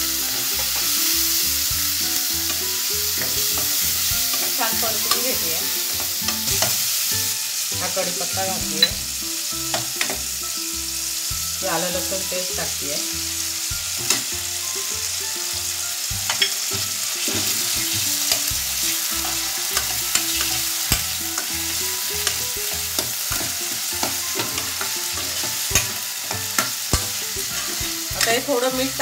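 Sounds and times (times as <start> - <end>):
food sizzling in oil: 0.0 - 29.0
ladle stirring and scraping: 17.2 - 28.4.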